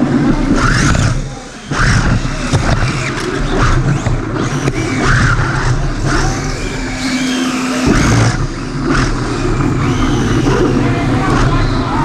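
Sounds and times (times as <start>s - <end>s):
rc car motor whine: 0.0s - 12.0s
steady hum: 0.0s - 12.0s.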